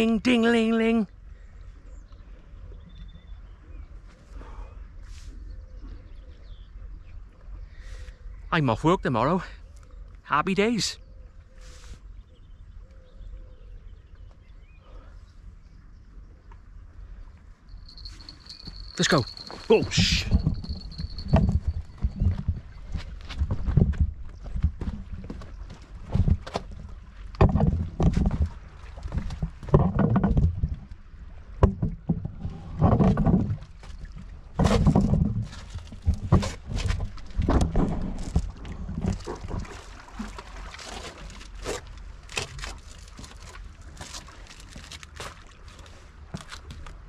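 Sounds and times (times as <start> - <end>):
footsteps on boulders: 17.8 - 30.6.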